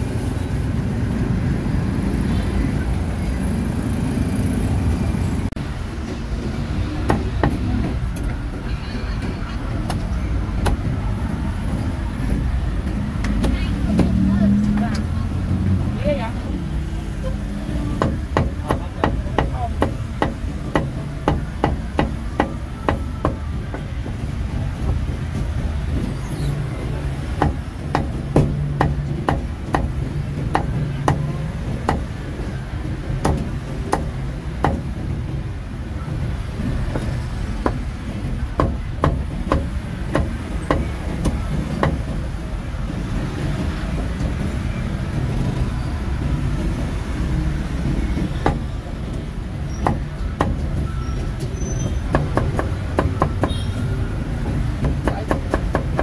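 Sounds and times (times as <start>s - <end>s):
cleaver chopping on wooden block: 54.8s - 56.0s.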